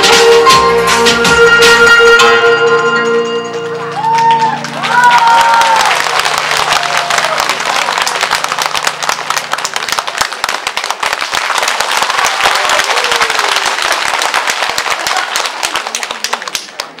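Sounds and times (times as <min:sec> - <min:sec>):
stage music: 0:00.0 - 0:16.3
audience applauding: 0:03.6 - 0:17.0.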